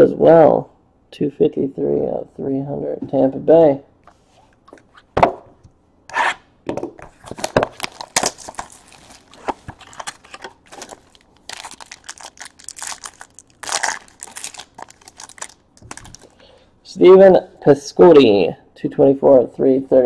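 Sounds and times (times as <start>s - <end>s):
plastic wrapping crinkling: 7.1s - 16.5s.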